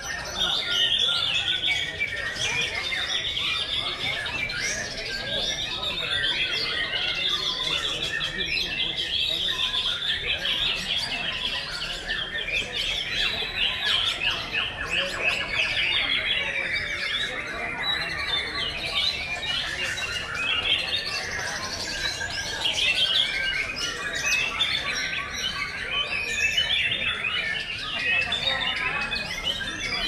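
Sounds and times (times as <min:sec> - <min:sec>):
songbirds singing: 0:00.0 - 0:30.0.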